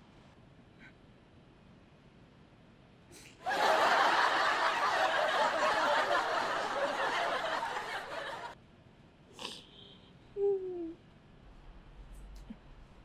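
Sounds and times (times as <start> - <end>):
sitcom laugh track: 3.4 - 8.6.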